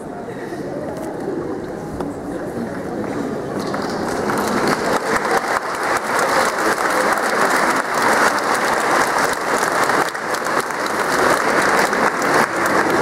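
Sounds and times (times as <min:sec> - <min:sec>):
large audience applauding: 0:03.6 - 0:13.0.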